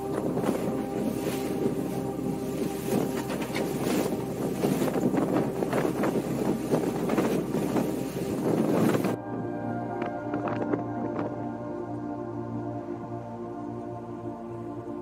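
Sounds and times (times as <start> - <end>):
wind rushing over microphone: 0.0 - 11.8
water splashing against hull: 0.0 - 11.9
low hum: 0.0 - 15.0
soft background music: 0.0 - 15.0.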